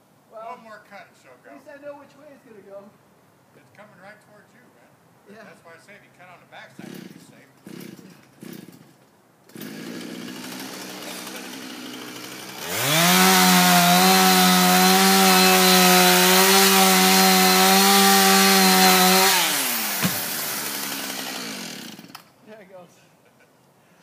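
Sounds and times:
chainsaw cutting tree trunk: 6.8s - 8.9s, 9.5s - 22.3s
sharp knock: 20.0s - 20.3s.

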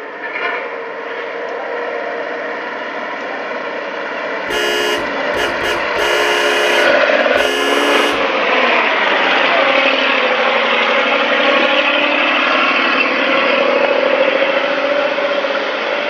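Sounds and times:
truck horn blasts: 4.5s - 8.4s
truck engine and road noise: 4.5s - 8.6s.

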